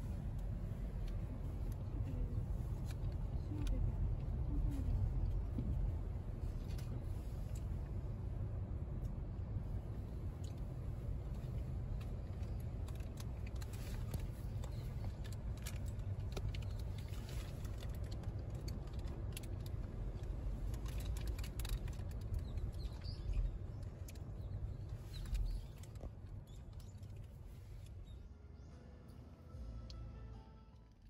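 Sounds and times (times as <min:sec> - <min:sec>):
steady low street rumble: 0:00.0 - 0:31.0
light clicks and taps: 0:10.4 - 0:28.0.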